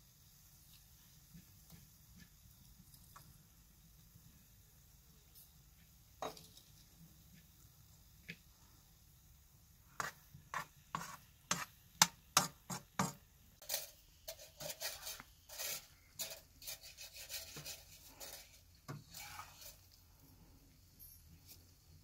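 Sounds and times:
metal spoon tapping on pan: 10.0s - 13.2s
metal spoon scraping pan: 10.0s - 20.0s.

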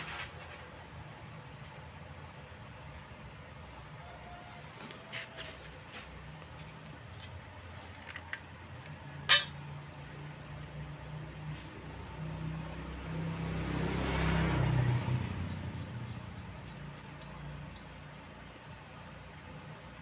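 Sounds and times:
motor vehicle engine: 4.8s - 20.0s.

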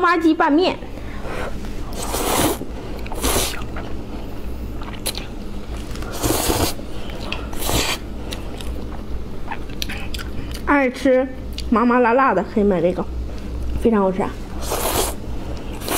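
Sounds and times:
person slurping noodles: 1.9s - 3.6s, 6.1s - 6.8s, 7.6s - 8.0s, 14.6s - 15.2s.

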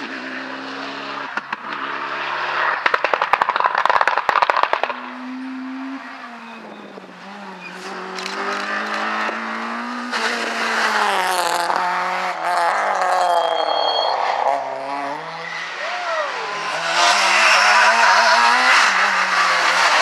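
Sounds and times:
rally car engine revving: 0.0s - 20.0s
rally car exhaust cracks: 1.2s - 5.2s
tyre squeal: 6.1s - 9.0s, 12.6s - 18.5s.

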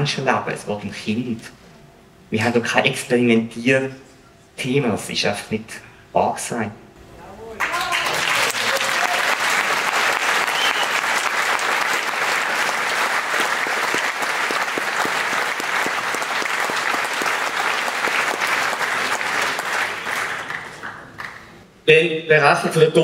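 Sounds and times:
audience applauding: 7.6s - 21.6s.

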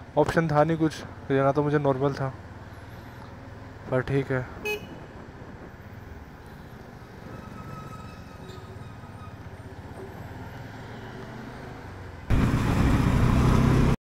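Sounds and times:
vehicle engine rumble: 0.0s - 14.0s.

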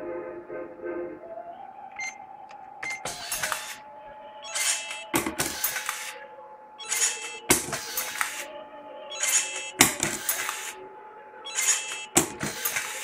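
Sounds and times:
card dispenser whirring: 2.8s - 3.8s, 4.5s - 6.2s, 6.8s - 8.5s, 9.2s - 10.8s, 11.5s - 13.0s
sharp mechanical clicks: 4.5s - 6.2s, 6.8s - 8.5s, 9.2s - 10.8s.

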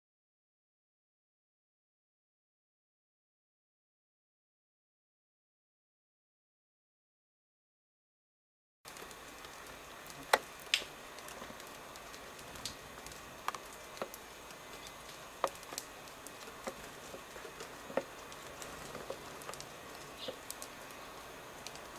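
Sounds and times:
light taps and clicks: 8.9s - 20.7s.

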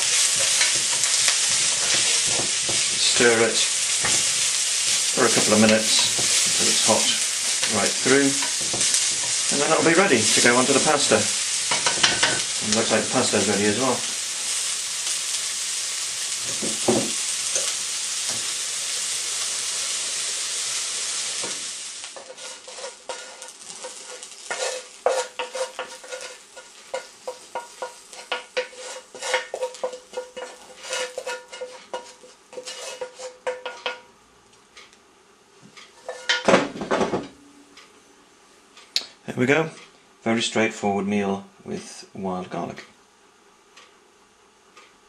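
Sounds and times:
spatula scraping pan: 0.0s - 13.5s, 22.1s - 34.0s, 35.9s - 36.5s
food sizzling in frying pan: 0.0s - 34.1s, 36.0s - 37.2s.

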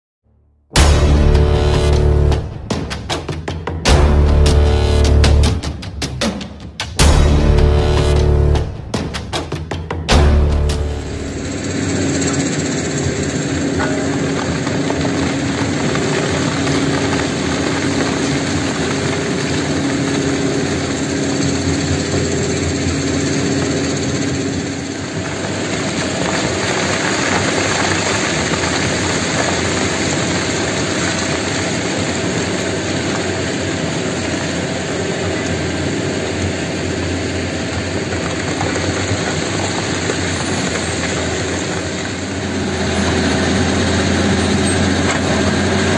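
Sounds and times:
heavy machinery humming drone: 0.8s - 6.1s, 7.0s - 45.9s
rock and soil pouring down: 10.5s - 45.9s.

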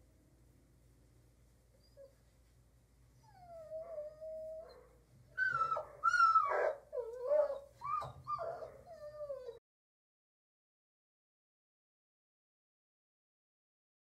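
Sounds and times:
dog whining: 3.2s - 9.6s.

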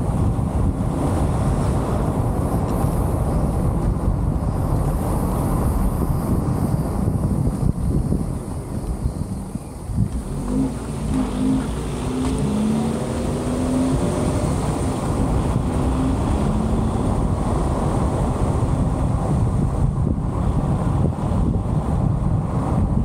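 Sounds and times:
road and wind noise: 0.0s - 23.0s
car engine accelerating: 9.9s - 23.0s.

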